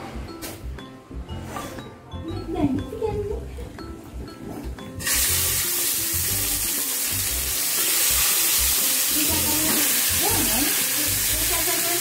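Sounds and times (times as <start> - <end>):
fish sizzling in hot oil: 5.0 - 12.0.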